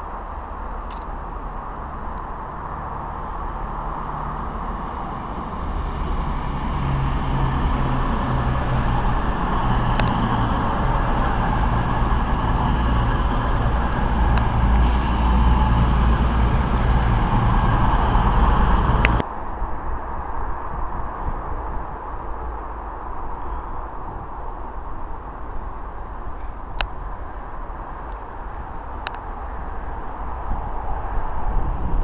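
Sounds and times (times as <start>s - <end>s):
diesel engines humming: 0.0s - 19.2s
sharp clicks: 0.9s - 1.1s, 9.9s - 10.2s
train wheels rumbling: 1.8s - 19.2s.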